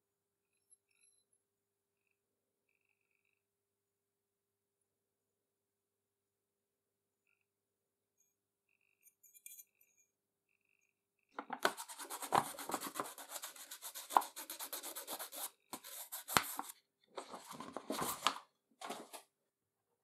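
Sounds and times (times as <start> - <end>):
crayon scratching on paper: 11.6 - 16.8.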